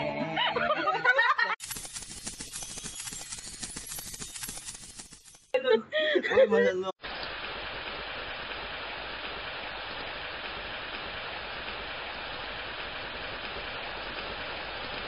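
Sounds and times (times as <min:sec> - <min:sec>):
rain hiss: 0:01.6 - 0:05.4, 0:07.0 - 0:15.0.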